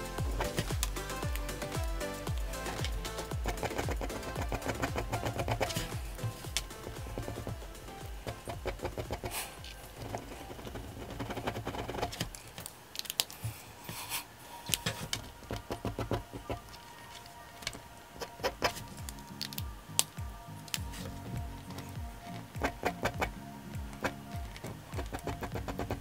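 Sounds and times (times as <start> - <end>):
background music: 0.0 - 26.0
pen scratching on paper: 8.2 - 12.3.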